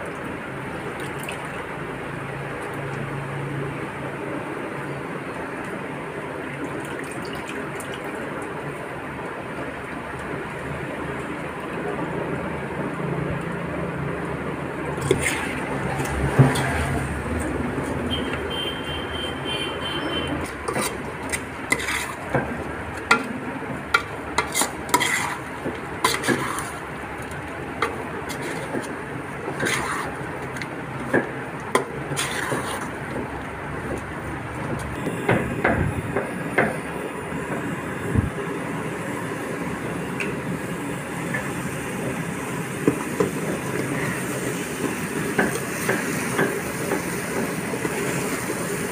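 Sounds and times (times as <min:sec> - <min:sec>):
metal spoon scraping a pot: 0:15.0 - 0:17.0, 0:20.4 - 0:22.4, 0:24.0 - 0:26.9, 0:27.8 - 0:28.9, 0:29.5 - 0:30.7, 0:31.8 - 0:32.9.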